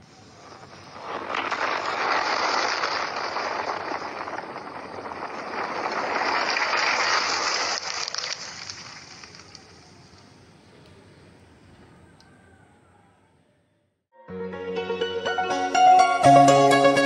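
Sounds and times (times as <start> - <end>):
crackles: 0.0 - 11.0.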